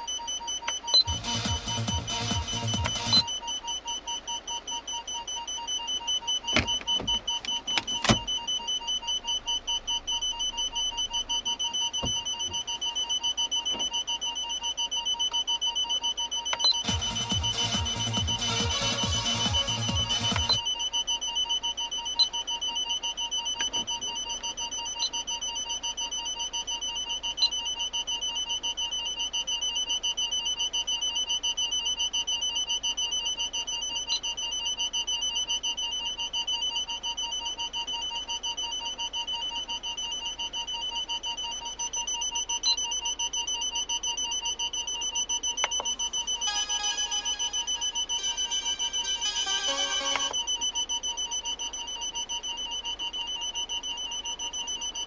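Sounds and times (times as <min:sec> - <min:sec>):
parking sensor beeping: 0:00.0 - 0:55.0
other electronic tones: 0:00.7 - 0:09.2, 0:16.3 - 0:20.8, 0:45.6 - 0:50.8.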